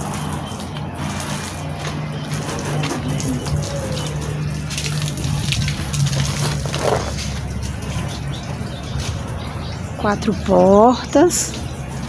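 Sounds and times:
water rushing from hose: 0:00.0 - 0:09.5
low steady hum: 0:00.0 - 0:12.0.

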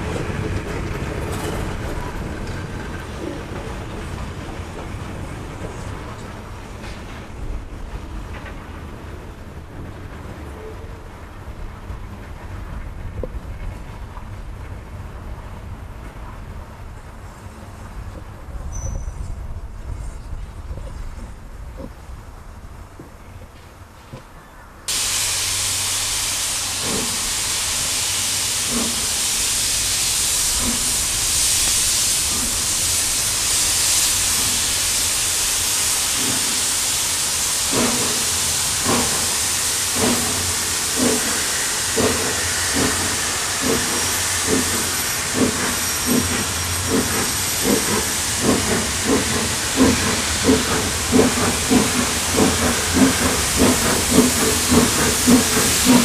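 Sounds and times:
hiss of escaping steam: 0:24.9 - 0:56.0
steam locomotive exhaust beats: 0:24.9 - 0:56.0.

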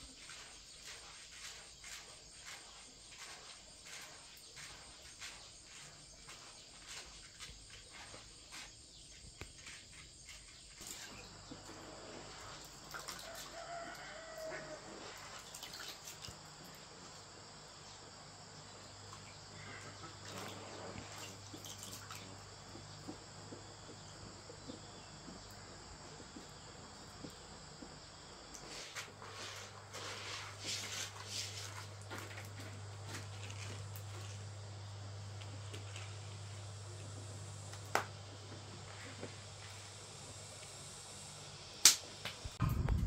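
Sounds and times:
rooster crowing: 0:13.1 - 0:15.3.

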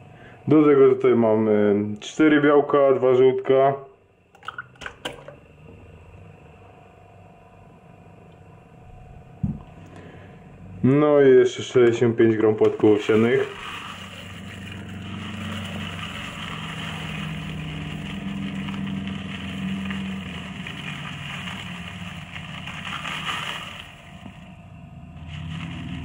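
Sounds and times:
low machine hum: 0:00.0 - 0:26.0
oats pouring into plastic cup: 0:12.6 - 0:24.6, 0:25.2 - 0:26.0.

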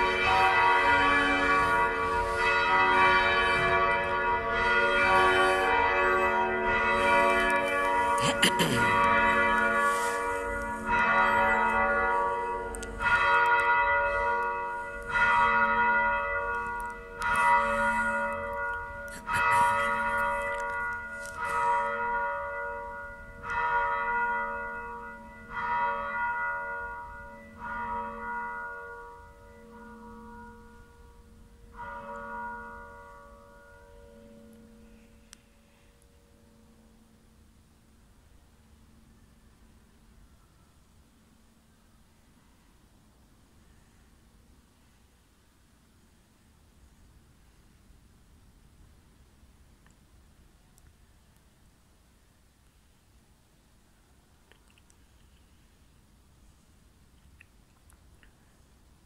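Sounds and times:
church bells ringing: 0:00.0 - 0:37.5.

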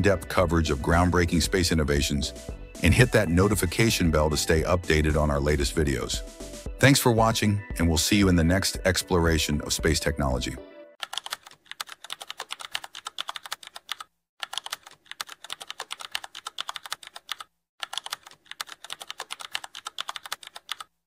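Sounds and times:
keyboard typing: 0:11.0 - 0:21.0.

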